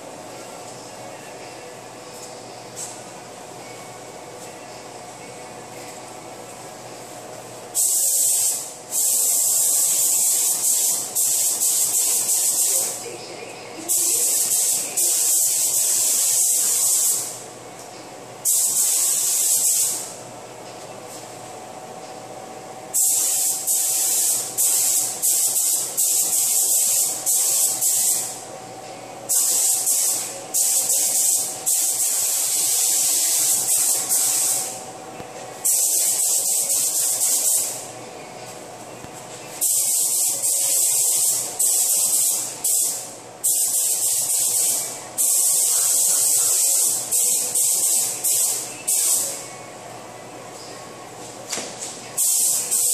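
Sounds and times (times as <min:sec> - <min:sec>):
paint spray gun hissing: 0:07.8 - 0:13.0, 0:13.9 - 0:17.4, 0:18.4 - 0:20.1, 0:22.9 - 0:28.4, 0:29.3 - 0:34.8, 0:35.6 - 0:37.8, 0:39.6 - 0:49.4, 0:52.2 - 0:52.9.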